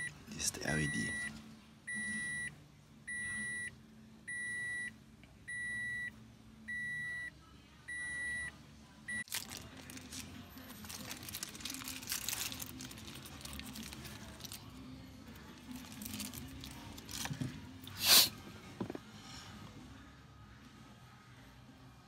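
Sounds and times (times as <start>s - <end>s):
car warning chime beeping: 0.8s - 3.7s
plastic parts rustling: 9.3s - 14.8s, 15.6s - 17.6s.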